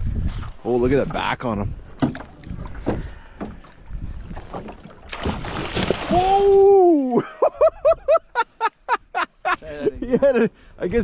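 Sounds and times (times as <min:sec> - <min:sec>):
wind on microphone: 0:00.0 - 0:06.6
fish thrashing and splashing: 0:01.9 - 0:06.6
knocks on boat: 0:02.0 - 0:03.6
man shouting in surprise: 0:06.1 - 0:07.2.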